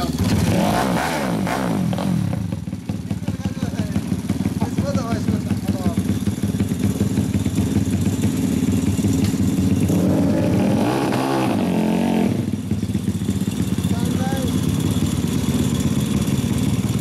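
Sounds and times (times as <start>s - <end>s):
motorbike engine idling and revving: 0.0s - 17.0s.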